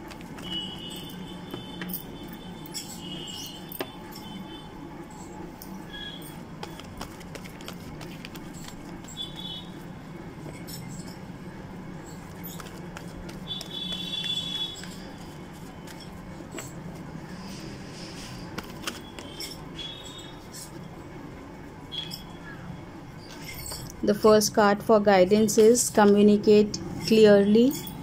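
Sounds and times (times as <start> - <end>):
cards being shuffled: 6.5 - 9.4, 12.1 - 17.1, 18.4 - 19.6.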